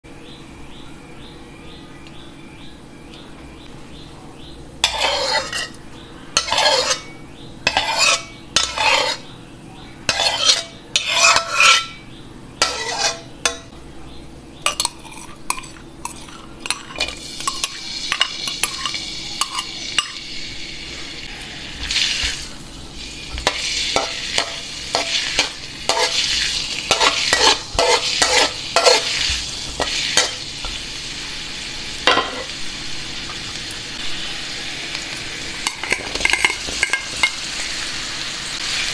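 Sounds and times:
garlic sizzling in hot oil: 4.8 - 5.8, 6.4 - 9.2, 10.1 - 12.0, 12.6 - 13.7, 14.8 - 38.9
metal spoon scraping bowl and wok: 4.8 - 5.8, 6.4 - 9.3, 10.0 - 13.7, 14.7 - 20.3, 21.7 - 31.0, 32.0 - 32.6, 35.5 - 37.8.

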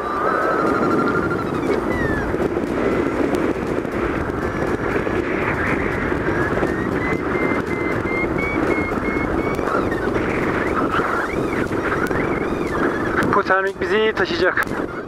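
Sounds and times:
variometer electronic tone and beeps: 0.0 - 15.0
wind rushing over microphone: 0.0 - 15.0.

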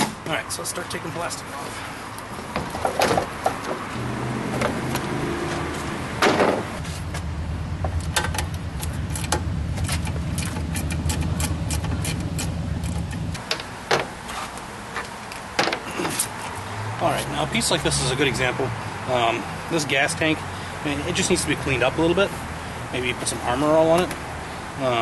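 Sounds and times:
low motor hum: 3.9 - 13.4
loud clunk: 6.2 - 6.7.

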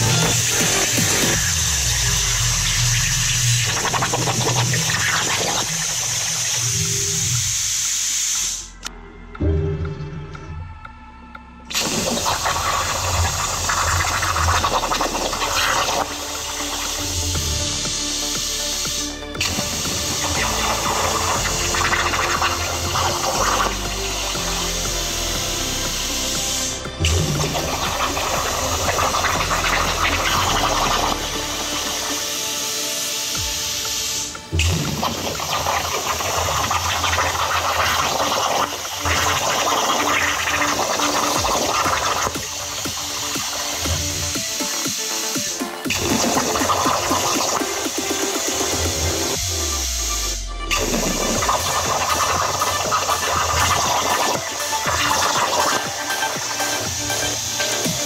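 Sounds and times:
plasma torch cutting hiss: 0.0 - 8.9, 11.7 - 58.0
low hum: 8.6 - 32.2.

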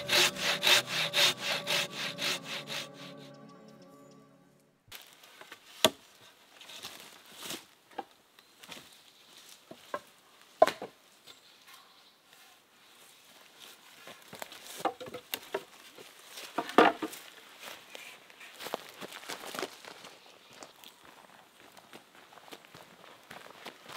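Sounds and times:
footsteps in leaf litter: 17.2 - 20.6.

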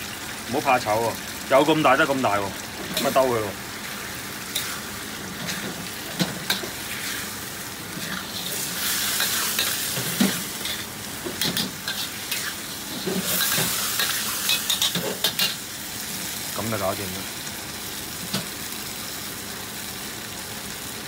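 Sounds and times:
food sizzling in a wok: 0.0 - 21.0
metal spatula scraping wok: 4.4 - 15.6.

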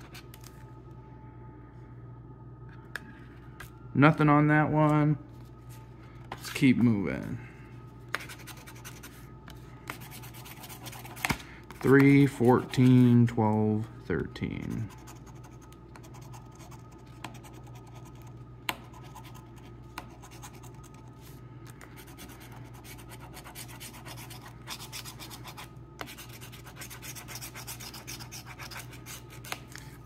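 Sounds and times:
coin scratching lottery ticket: 22.0 - 29.5.

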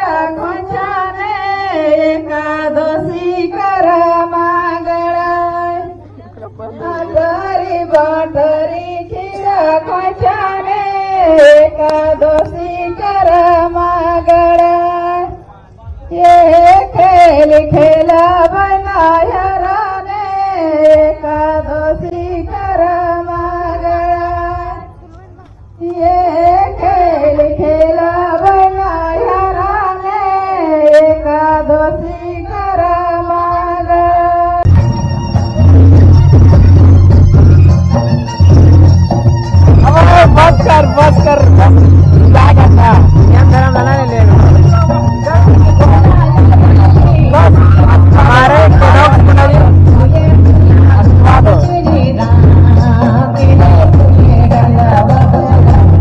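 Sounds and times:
woman singing into a microphone: 0.0 - 15.5, 16.1 - 25.0, 25.7 - 34.7, 39.8 - 43.3, 45.2 - 56.0
low pulsing beat: 34.6 - 56.0
high voice singing: 39.8 - 56.0.

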